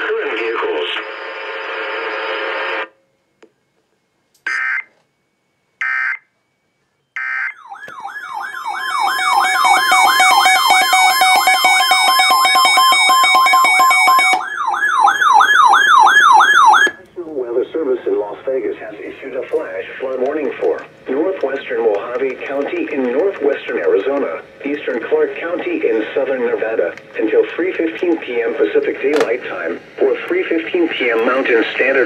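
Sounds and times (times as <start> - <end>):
radio broadcast audio: 0.0 - 2.9, 16.8 - 32.0
warbling siren-like alarm: 4.5 - 5.0, 5.8 - 6.3, 7.1 - 17.0
steady weather alert tone: 7.2 - 32.0.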